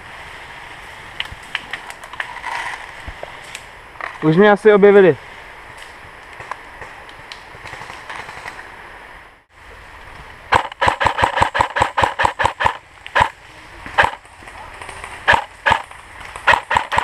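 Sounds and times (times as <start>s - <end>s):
airsoft rifle rapid firing: 10.5s - 13.4s, 14.0s - 14.2s, 15.3s - 15.8s, 16.4s - 17.0s.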